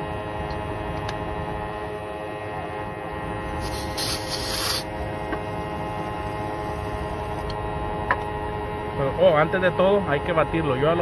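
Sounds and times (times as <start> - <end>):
refrigerant hiss: 3.4 - 7.4.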